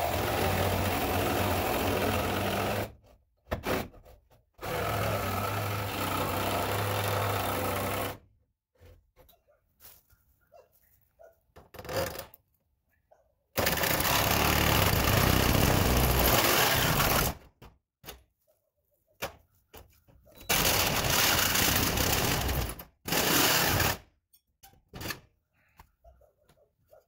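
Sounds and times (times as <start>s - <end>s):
power tool cutting metal siding: 0.0s - 3.0s, 4.6s - 8.2s, 13.6s - 17.4s, 20.5s - 24.1s.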